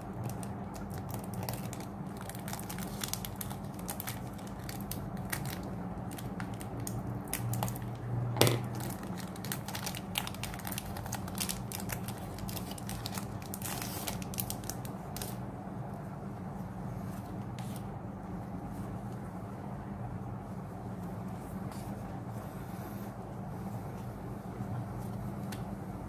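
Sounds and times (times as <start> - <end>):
foil wrapper crinkling: 0.0 - 15.4
steady low hum: 0.0 - 26.0.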